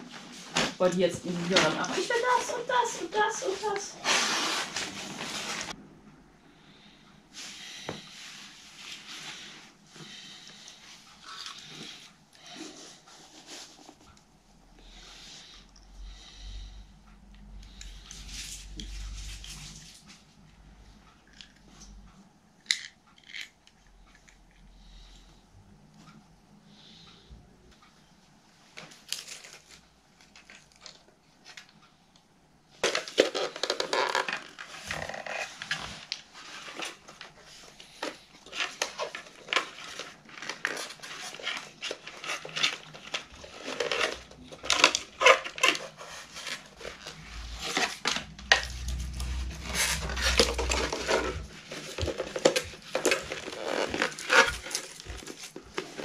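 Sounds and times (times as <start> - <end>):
plastic parts clicking and rattling: 22.6 - 24.5, 32.7 - 56.0.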